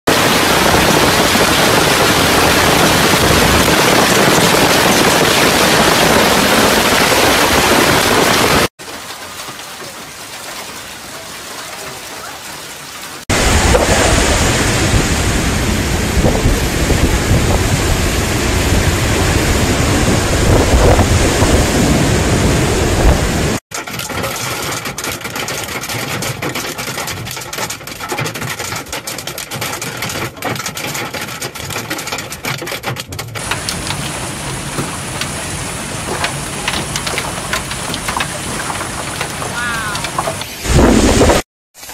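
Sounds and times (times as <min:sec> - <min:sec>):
hailstones ticking: 0:00.1 - 0:21.9, 0:23.7 - 0:41.1
heavy rain and hail: 0:00.1 - 0:41.9.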